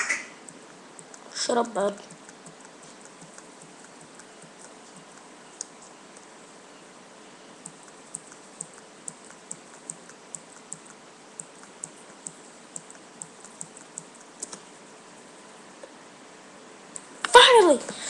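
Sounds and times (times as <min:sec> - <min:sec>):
keyboard keys clicking: 0:00.4 - 0:06.3, 0:07.6 - 0:14.6.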